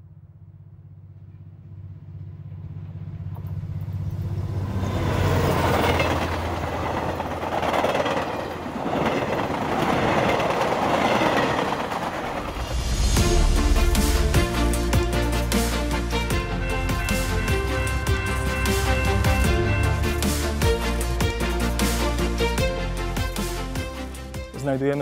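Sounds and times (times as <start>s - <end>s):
low hum: 0.0s - 7.5s
train wheels rushing on rail: 3.1s - 22.7s
music: 12.5s - 25.0s.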